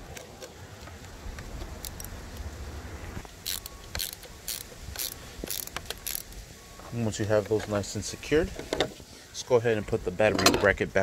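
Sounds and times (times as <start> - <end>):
ratcheting wrench clicking: 3.4 - 6.4.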